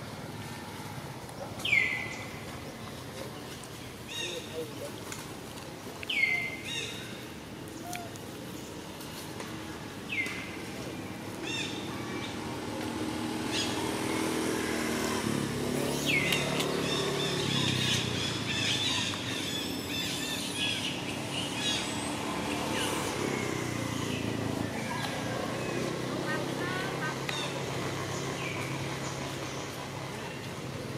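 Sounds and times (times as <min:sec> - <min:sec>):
birds chirping: 0:01.2 - 0:09.2, 0:10.0 - 0:30.9
vehicle engine droning: 0:09.3 - 0:30.9.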